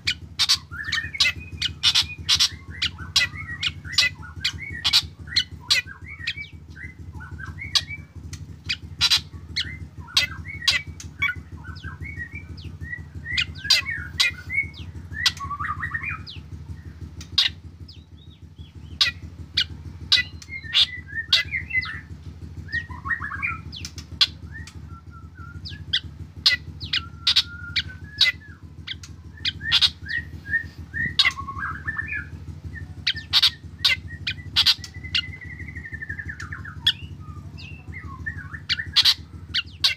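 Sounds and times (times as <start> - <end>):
steady low hum: 0.0 - 39.9.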